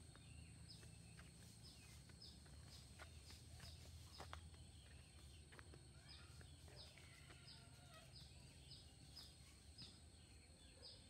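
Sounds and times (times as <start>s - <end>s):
faint bird chirps and warbles: 0.0s - 11.0s.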